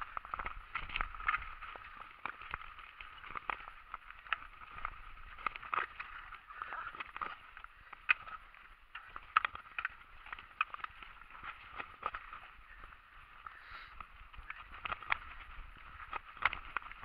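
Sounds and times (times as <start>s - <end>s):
bike rattling over stones: 0.0s - 17.0s.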